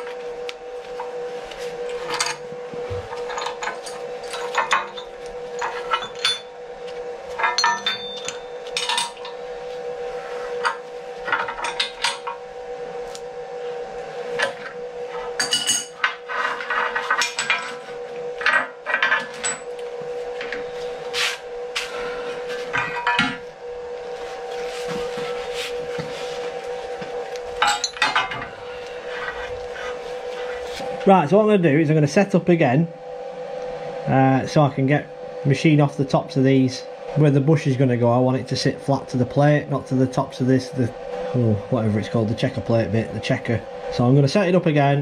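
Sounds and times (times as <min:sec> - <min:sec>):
steady hum: 0:00.0 - 0:45.0
spanner clinking on metal: 0:03.3 - 0:06.5, 0:07.4 - 0:09.3, 0:27.6 - 0:28.4.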